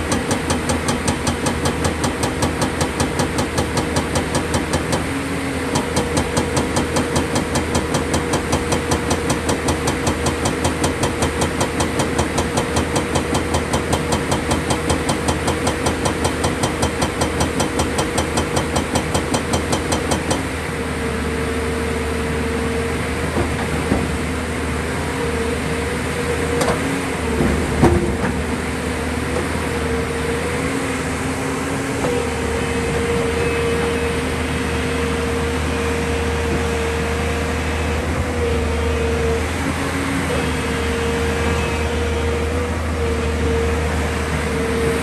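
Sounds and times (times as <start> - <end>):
hydraulic rock breaker hammering: 0.0 - 5.1, 5.7 - 20.5
diesel engine running: 0.0 - 45.0.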